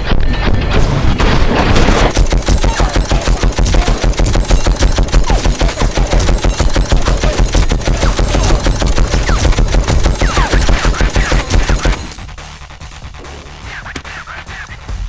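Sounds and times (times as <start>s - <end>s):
automatic gunfire: 1.3s - 12.1s.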